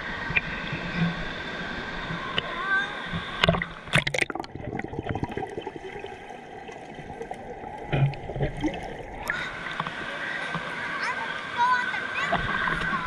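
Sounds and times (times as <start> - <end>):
water sloshing and trickling: 0.0 - 13.0
water splash: 3.1 - 10.7.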